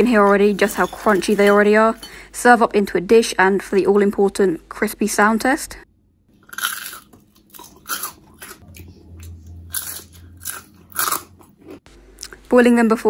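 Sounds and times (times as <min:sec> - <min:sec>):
crispy fries crunching: 0:06.4 - 0:11.8.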